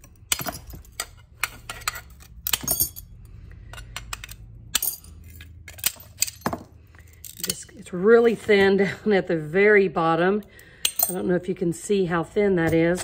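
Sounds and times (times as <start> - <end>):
glass shards dropping: 0.3 - 3.2.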